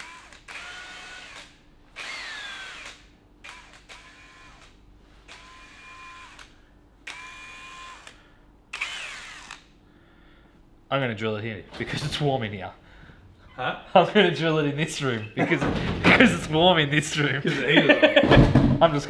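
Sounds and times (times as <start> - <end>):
cordless drill motor whine: 0.0 - 4.7, 5.3 - 9.6.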